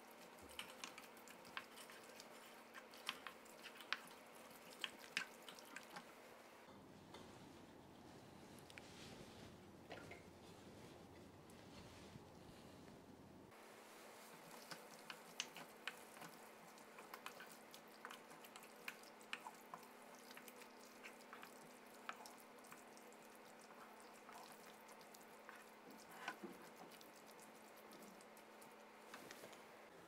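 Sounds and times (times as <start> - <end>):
wet squishes of stirred vegetables: 0.0 - 6.7, 13.5 - 30.0.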